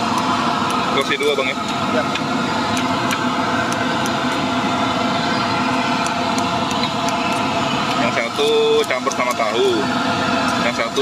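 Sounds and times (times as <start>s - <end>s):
engine drone: 0.0s - 11.0s.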